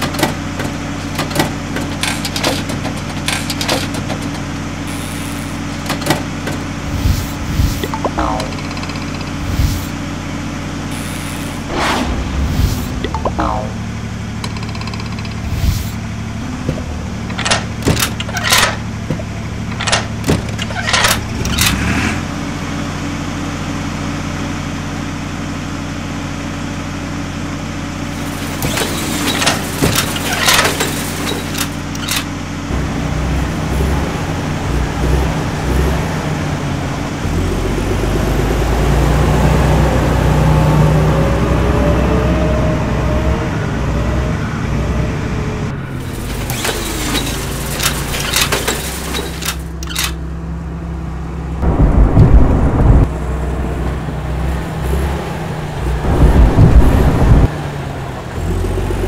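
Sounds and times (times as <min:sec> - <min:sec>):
sharp knocks and clanks: 0:00.0 - 0:04.7, 0:05.6 - 0:09.9, 0:12.0 - 0:21.7
heavy vehicle engine running: 0:00.0 - 0:59.0.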